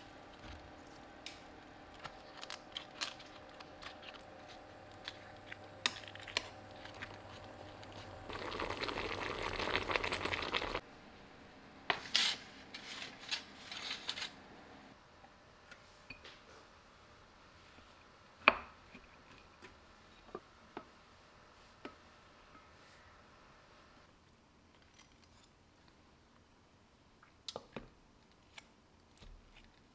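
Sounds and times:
water bubbling in saucepan: 0:07.5 - 0:10.8.

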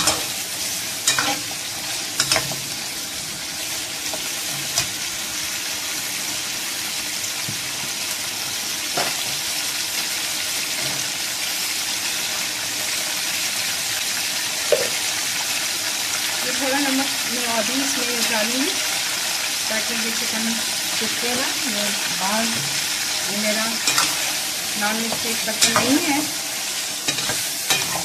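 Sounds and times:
chicken sizzling in hot oil: 0:00.0 - 0:28.0
ladle scraping and knocking wok: 0:23.8 - 0:24.4, 0:27.0 - 0:28.0.

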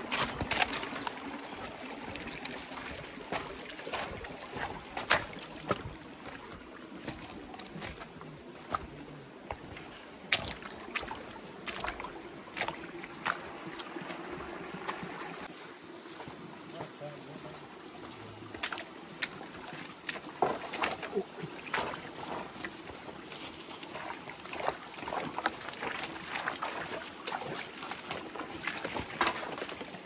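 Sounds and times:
footsteps in undergrowth: 0:00.0 - 0:30.0
dry leaves and brush rustling: 0:15.5 - 0:30.0.

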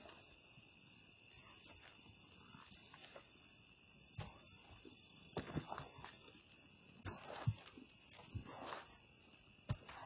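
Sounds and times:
insects chorus: 0:00.0 - 0:10.0
footsteps on dry leaves: 0:07.0 - 0:09.0.

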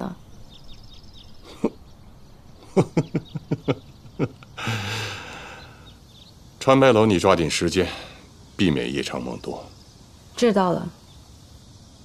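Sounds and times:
person chuckling: 0:01.4 - 0:01.8, 0:02.6 - 0:05.4
breathy exhale: 0:04.6 - 0:06.0.

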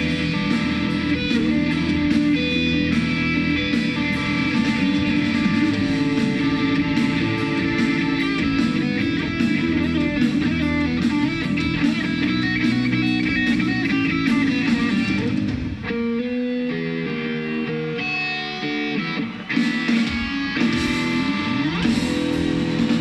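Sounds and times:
drums with cymbal hits: 0:00.0 - 0:16.1, 0:19.5 - 0:23.0
electric guitar riffing: 0:00.0 - 0:23.0.

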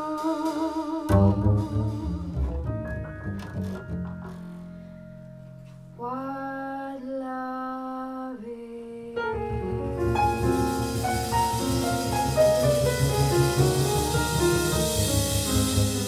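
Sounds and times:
woman singing: 0:00.0 - 0:02.5, 0:06.0 - 0:10.4
double bass: 0:00.0 - 0:06.2, 0:09.3 - 0:16.0
piano: 0:00.0 - 0:16.0
cymbals: 0:09.4 - 0:16.0.

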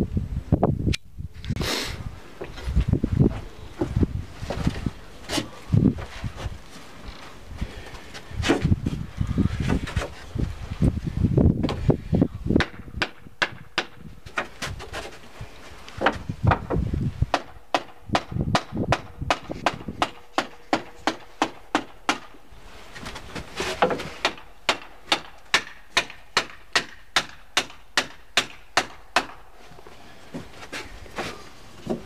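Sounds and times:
hammer striking wood: 0:12.6 - 0:14.0, 0:16.0 - 0:22.4, 0:23.8 - 0:29.4.

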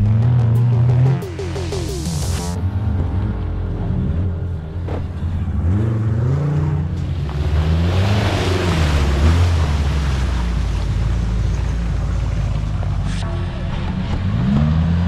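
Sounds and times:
engine revving: 0:00.0 - 0:15.0
wheels splashing through muddy water: 0:06.1 - 0:15.0.

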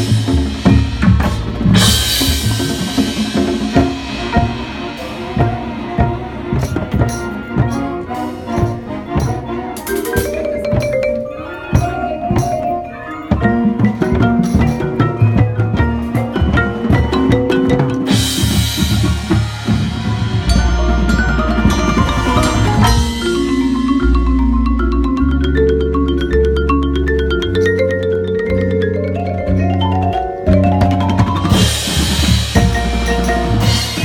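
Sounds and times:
deep drum hits: 0:00.0 - 0:07.7
marimbas playing quick runs: 0:00.0 - 0:34.0.

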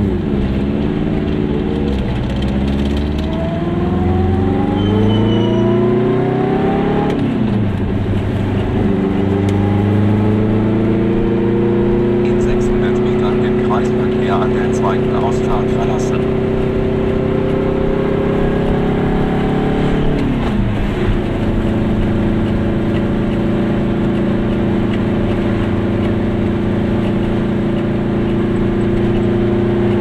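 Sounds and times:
two-stroke car engine running: 0:07.4 - 0:30.0.

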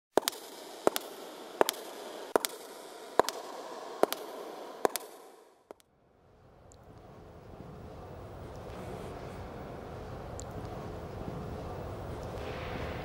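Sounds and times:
footsteps on stone floor echoing: 0:00.1 - 0:05.8.

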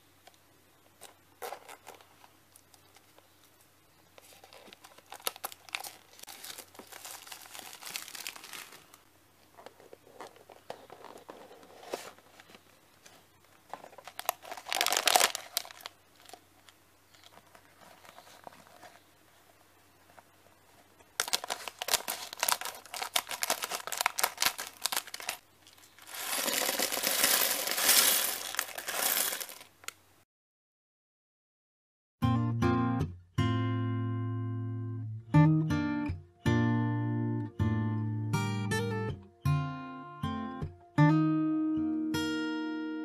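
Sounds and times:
paper rustling: 0:04.1 - 0:29.9
plastic film crinkling and tearing: 0:04.2 - 0:09.0, 0:13.6 - 0:19.1, 0:21.2 - 0:30.0.

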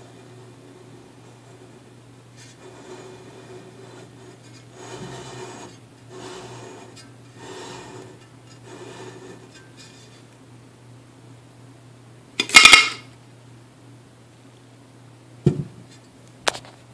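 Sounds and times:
steady low hum: 0:00.0 - 0:12.4
glass jar scraping on tabletop: 0:02.4 - 0:10.2.

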